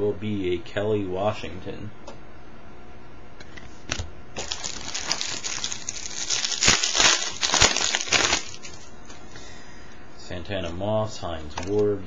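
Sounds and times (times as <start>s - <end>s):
foil wrapper crinkling and tearing: 4.4s - 8.9s.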